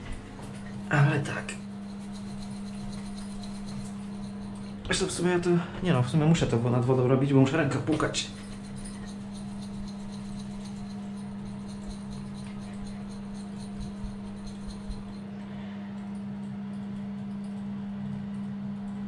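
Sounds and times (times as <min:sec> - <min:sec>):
steady low hum: 0:00.0 - 0:19.0
dry leaves rattling in cup: 0:00.9 - 0:05.4, 0:07.7 - 0:15.2
cup tapped and shaken: 0:01.2 - 0:05.2, 0:07.8 - 0:15.2.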